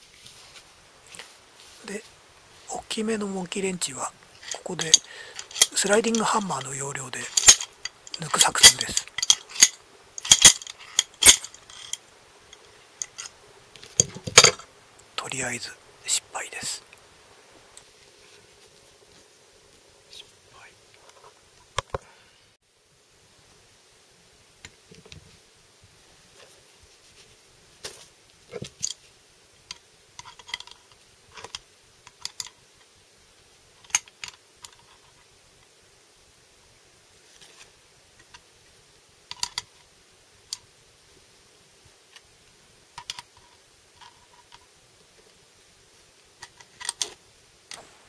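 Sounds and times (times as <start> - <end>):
pliers clicking on metal: 4.4 - 6.2, 7.3 - 13.3.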